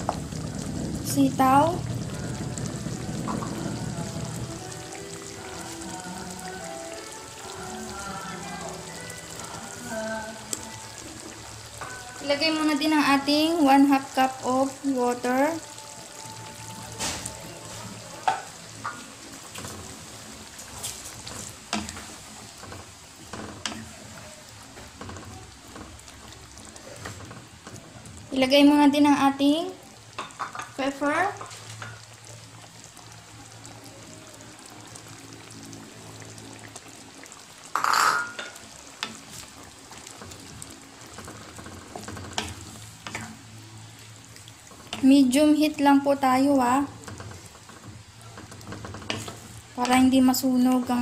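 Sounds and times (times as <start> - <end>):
faint sizzle: 0.0 - 51.0
simmering liquid hissing: 0.0 - 51.0
spatula stirring vegetables: 1.2 - 32.8, 37.4 - 51.0
spatula scraping pan: 47.1 - 50.0.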